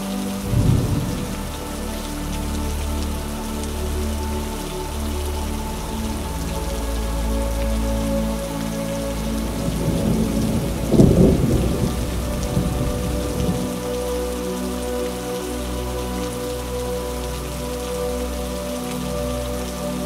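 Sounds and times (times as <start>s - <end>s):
rain pattering: 0.0s - 20.0s
thunder rolling: 9.7s - 13.6s.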